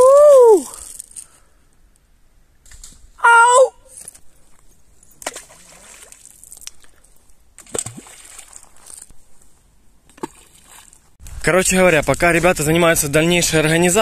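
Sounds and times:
person shouting: 0:00.0 - 0:00.8, 0:03.2 - 0:03.9
stones splashing in river: 0:05.2 - 0:06.8, 0:07.6 - 0:09.0, 0:10.1 - 0:11.1.

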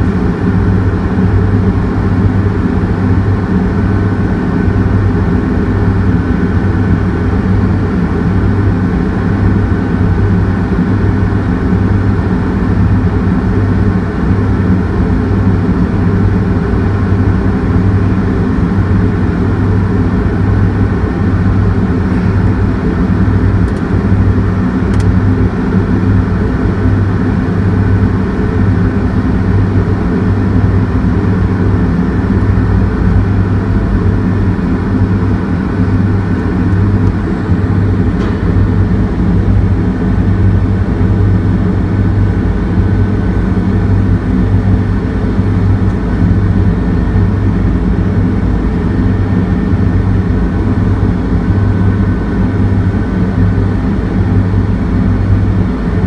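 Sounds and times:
diesel engine droning: 0:00.0 - 0:56.0.

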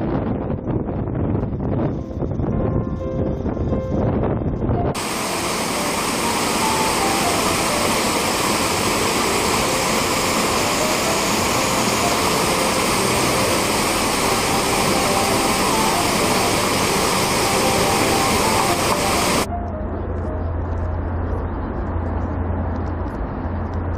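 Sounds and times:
small waterfall rushing over rocks: 0:05.0 - 0:19.5.

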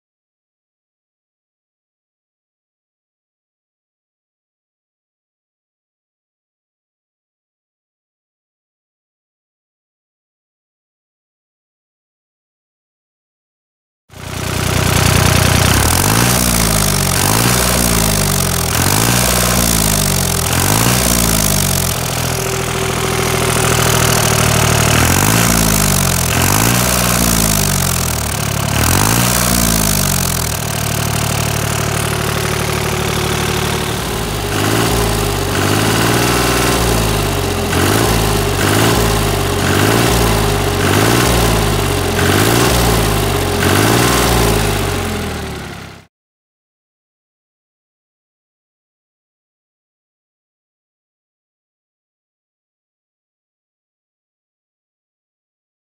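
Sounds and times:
tractor diesel engine surging: 0:14.2 - 0:46.1.

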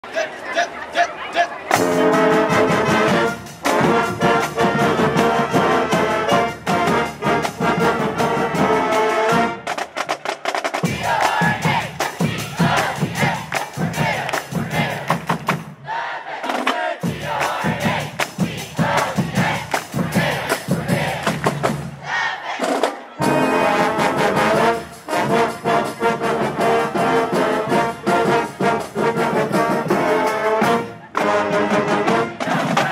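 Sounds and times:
alto saxophones: 0:01.7 - 0:09.7, 0:23.2 - 0:32.6
marching band playing brass: 0:01.7 - 0:32.9
people shouting a chant: 0:10.8 - 0:15.1, 0:15.8 - 0:21.3, 0:22.0 - 0:24.8, 0:32.1 - 0:32.9
sharp percussion hits: 0:10.8 - 0:15.7
people clapping: 0:11.1 - 0:15.3, 0:17.2 - 0:21.4.

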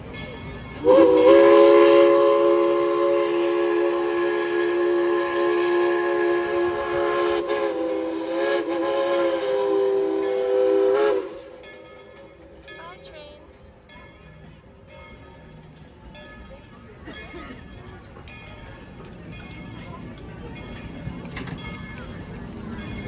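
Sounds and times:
steam locomotive whistle chord: 0:00.8 - 0:12.1.

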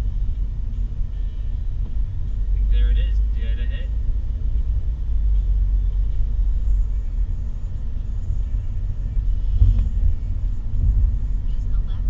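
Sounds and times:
car cabin road and engine rumble: 0:00.0 - 0:12.0
brief thump: 0:09.6 - 0:10.0.

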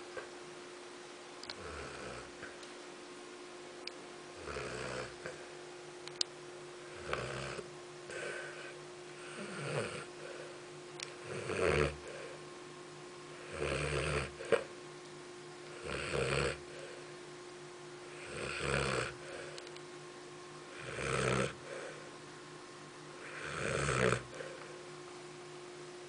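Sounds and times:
dog snoring: 0:01.5 - 0:02.5, 0:04.4 - 0:05.4, 0:06.9 - 0:10.5, 0:11.2 - 0:12.4, 0:13.3 - 0:14.7, 0:15.7 - 0:17.0, 0:18.1 - 0:19.5, 0:20.7 - 0:22.1, 0:23.2 - 0:24.7.

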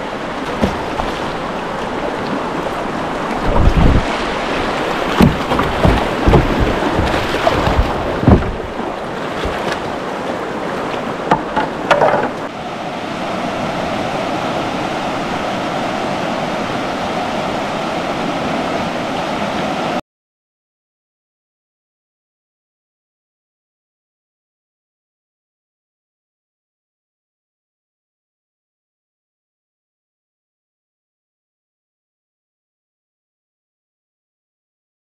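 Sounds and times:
rushing whitewater river: 0:00.0 - 0:20.0
low thumps and knocks: 0:00.5 - 0:01.4, 0:03.4 - 0:04.1, 0:04.9 - 0:10.0, 0:11.3 - 0:12.5.

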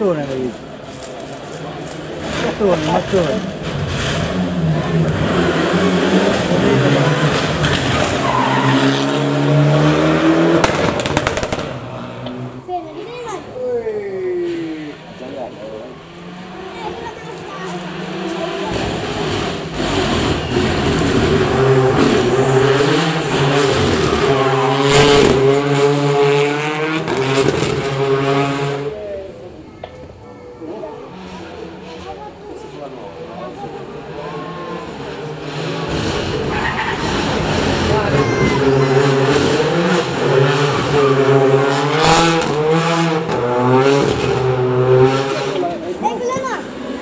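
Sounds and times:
rally car engine revving: 0:00.0 - 0:12.8, 0:14.4 - 0:29.6, 0:30.9 - 0:47.0
burst of noise: 0:10.5 - 0:12.4.

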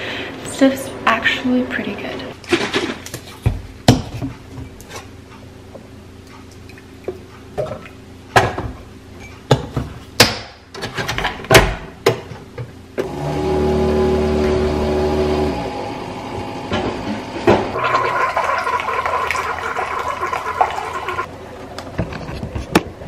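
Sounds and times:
coffee maker motor hum: 0:13.0 - 0:21.3.

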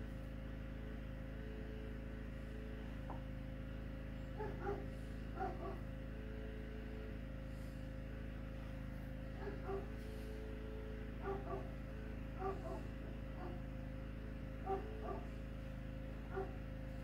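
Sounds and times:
low hum: 0:00.0 - 0:17.0
animal whining: 0:04.3 - 0:05.8, 0:09.4 - 0:10.0, 0:11.2 - 0:13.7, 0:14.6 - 0:15.3.

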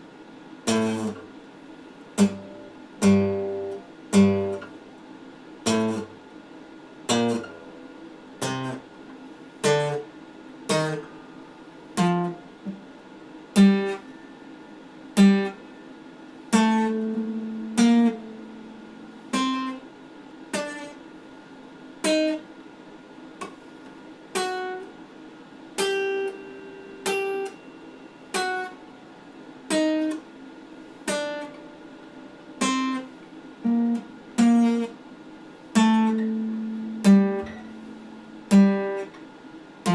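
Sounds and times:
acoustic guitar chords: 0:00.6 - 0:01.4, 0:02.1 - 0:04.8, 0:05.6 - 0:06.2, 0:07.0 - 0:09.0, 0:09.6 - 0:19.9, 0:24.4 - 0:24.9, 0:25.8 - 0:30.3, 0:31.0 - 0:39.9.

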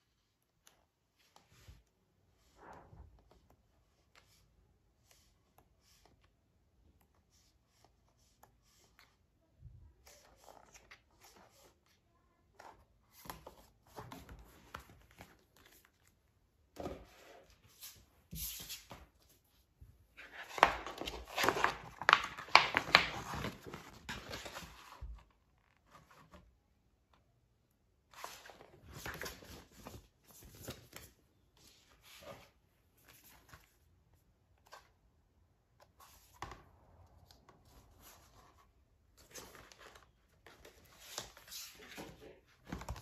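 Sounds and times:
pages turning: 0:20.2 - 0:26.4, 0:28.1 - 0:31.1.

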